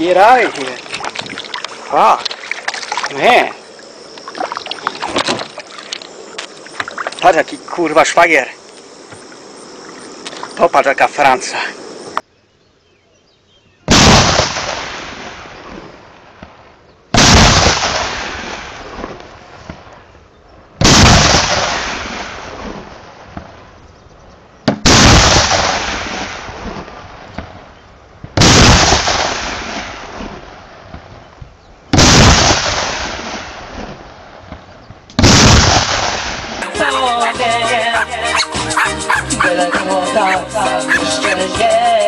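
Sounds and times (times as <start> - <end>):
loud barrel blast booms: 13.9 - 15.6, 17.1 - 19.1, 20.8 - 23.5, 24.6 - 27.6, 28.2 - 30.7, 31.9 - 33.8, 35.2 - 36.6.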